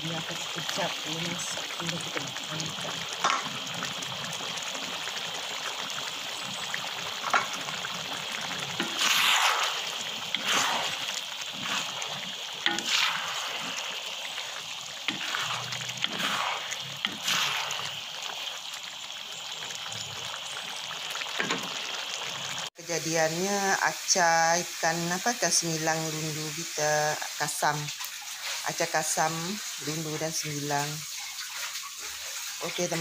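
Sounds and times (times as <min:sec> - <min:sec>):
sauce bubbling in a wok: 0:00.0 - 0:33.0
wooden spatula scraping wok: 0:08.8 - 0:18.0.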